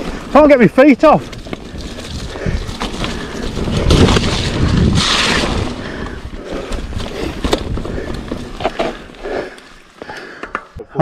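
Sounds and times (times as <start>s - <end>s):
tyres rolling on mud: 0.0s - 10.6s
bike clacking and rattling: 0.0s - 10.8s
wind on microphone: 3.4s - 8.0s.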